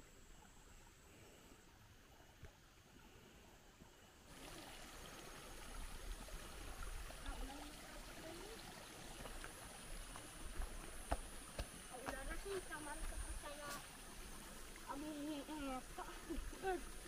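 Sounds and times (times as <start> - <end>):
river water rushing: 4.3 - 17.0.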